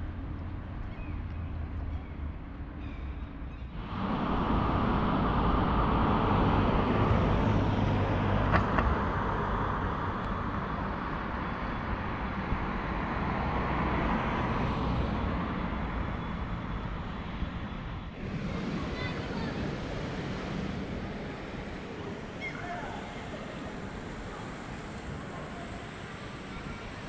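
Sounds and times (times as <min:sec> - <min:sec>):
boat engine rumble: 0:00.0 - 0:27.0
water wash: 0:18.2 - 0:27.0.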